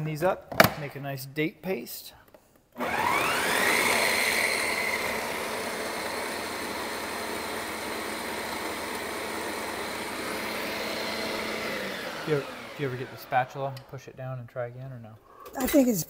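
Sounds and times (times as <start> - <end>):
blender motor grinding: 2.8 - 13.8.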